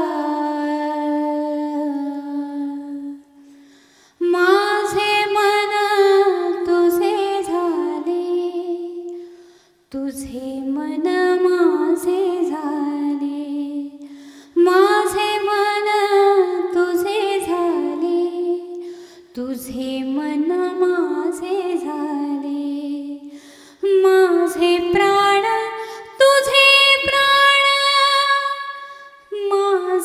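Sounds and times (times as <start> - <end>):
woman singing unaccompanied: 4.2 - 9.1, 9.9 - 14.0, 14.6 - 18.8, 19.4 - 30.0.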